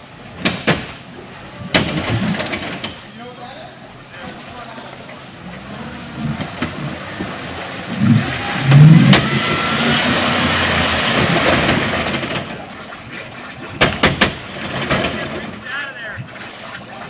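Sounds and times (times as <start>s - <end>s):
spinning tyres splashing mud: 4.1s - 17.0s
truck engine revving: 5.2s - 12.7s.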